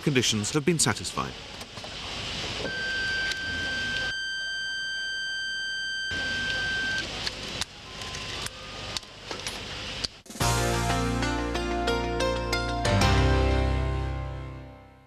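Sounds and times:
high-pitched electronic buzzer tone: 0:02.6 - 0:07.0.

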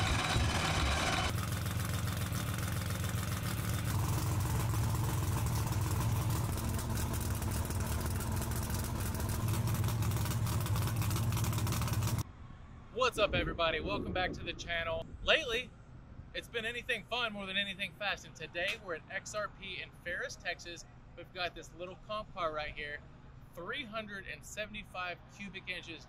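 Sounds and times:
race car engine idling: 0:00.0 - 0:12.2.

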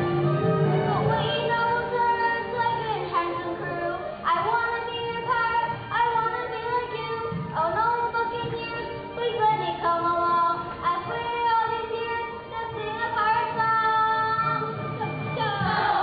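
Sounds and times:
instrumental accompaniment: 0:00.0 - 0:16.0
children singing: 0:15.0 - 0:16.0.

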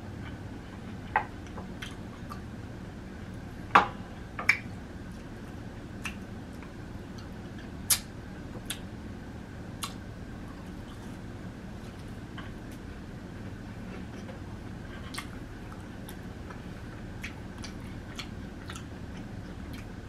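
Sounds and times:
close-miked chewing crunches: 0:13.8 - 0:20.0.

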